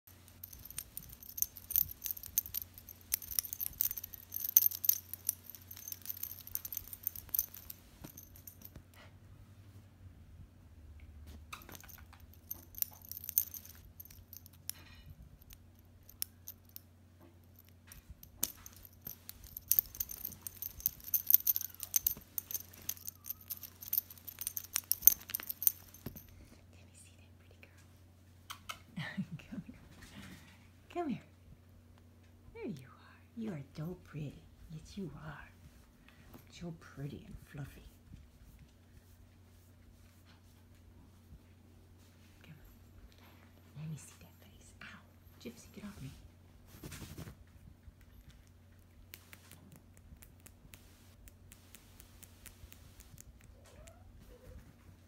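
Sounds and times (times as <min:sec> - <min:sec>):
metallic jingling and clinking: 0:00.1 - 0:08.8, 0:11.5 - 0:26.6.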